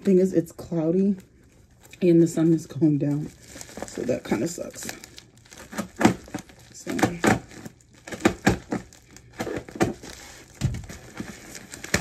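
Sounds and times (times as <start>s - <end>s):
plastic packaging crinkling: 1.0s - 12.0s.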